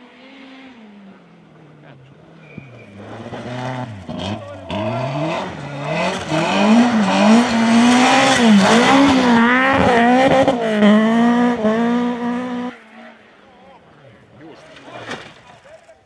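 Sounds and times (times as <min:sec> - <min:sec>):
car engine revving hard: 0:02.6 - 0:13.0.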